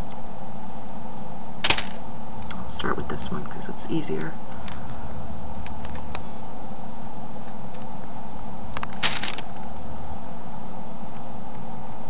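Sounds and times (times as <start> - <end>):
background hum and hiss: 0.0 - 12.0
paper crinkling: 6.9 - 10.0.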